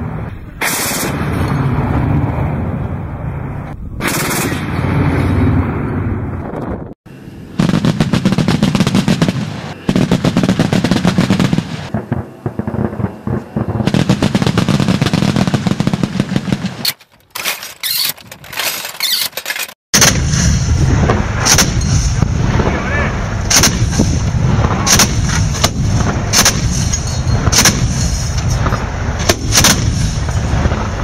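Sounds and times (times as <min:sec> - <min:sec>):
autocannon firing rapid bursts: 0:04.0 - 0:04.7, 0:07.6 - 0:16.8, 0:23.5 - 0:26.8, 0:27.4 - 0:28.0, 0:28.6 - 0:30.9.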